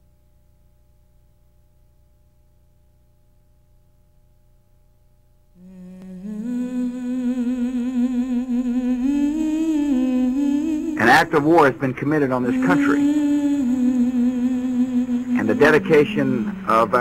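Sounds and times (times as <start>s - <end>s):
faint low hum: 0.0s - 17.0s
person singing wordless melody: 5.6s - 17.0s.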